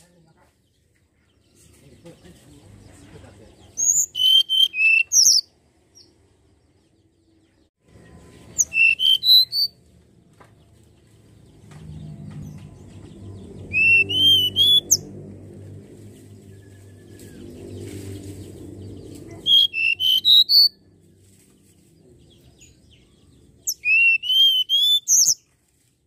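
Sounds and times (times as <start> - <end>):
bird whistled song: 3.8 - 5.5, 8.5 - 9.8, 13.6 - 15.1, 19.4 - 20.8, 23.6 - 25.4
low background rumble: 9.8 - 19.5.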